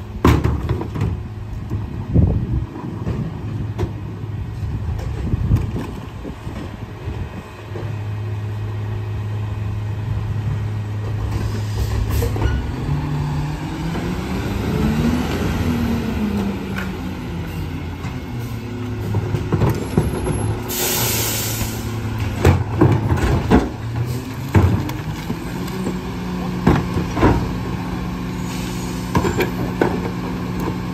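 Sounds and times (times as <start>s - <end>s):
garbage truck diesel engine: 0.0s - 30.9s
air brakes hissing: 11.3s - 12.7s, 20.4s - 22.0s, 28.4s - 29.3s.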